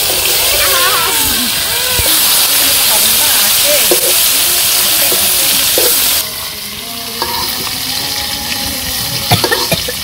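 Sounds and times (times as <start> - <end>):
fish sizzling in hot oil: 0.0 - 10.0
metal spatula scraping a pan: 7.2 - 7.7.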